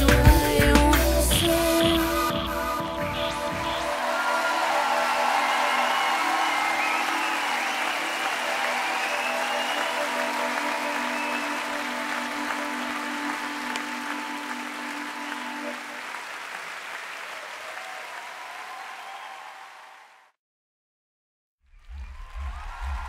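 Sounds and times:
background music with held notes: 0:00.0 - 0:16.0.

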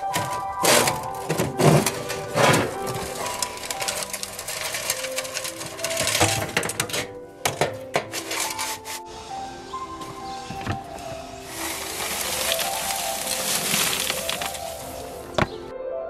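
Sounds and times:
metal ash sifter rattling: 0:00.0 - 0:09.0, 0:10.6 - 0:15.6
background music: 0:00.0 - 0:16.0.

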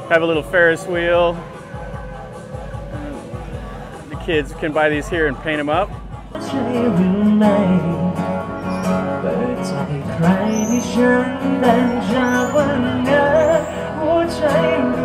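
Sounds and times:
guitar: 0:00.0 - 0:15.0
person singing: 0:06.3 - 0:15.0.

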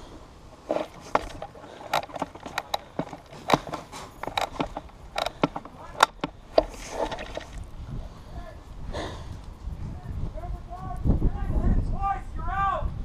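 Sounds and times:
bb hits: 0:00.6 - 0:07.7.

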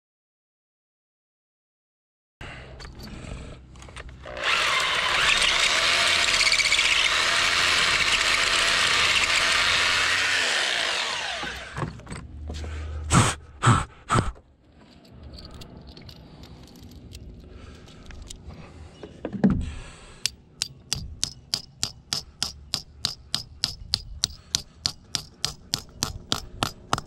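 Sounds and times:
power tool motor running: 0:04.2 - 0:11.9.

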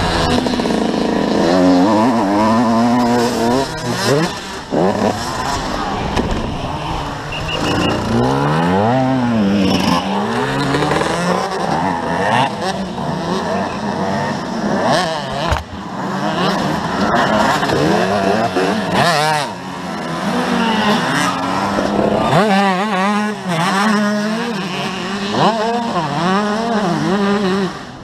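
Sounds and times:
motorbike engine revving: 0:00.0 - 0:28.0.

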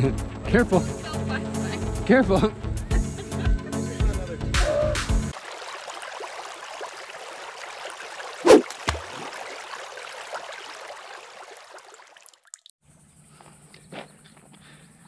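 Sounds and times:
rushing trickling water: 0:05.3 - 0:12.8.

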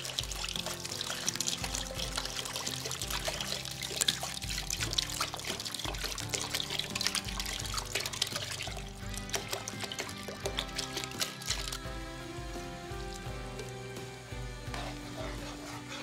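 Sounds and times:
background music: 0:00.0 - 0:16.0
water pouring into a pot: 0:00.0 - 0:16.0.

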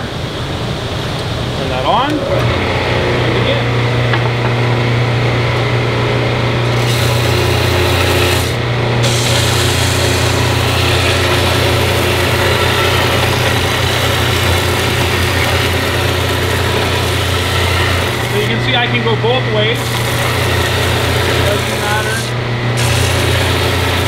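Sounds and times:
sander motor hum: 0:02.0 - 0:24.0
wood board rasping on sander: 0:06.7 - 0:18.7, 0:19.8 - 0:24.0.

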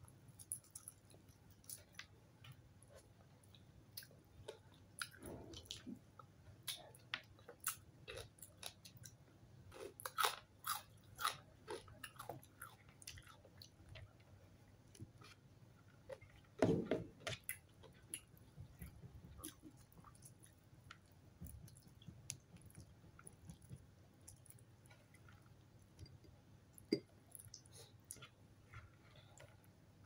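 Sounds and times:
chewing and mouth sounds: 0:06.6 - 0:14.2, 0:17.2 - 0:29.7.

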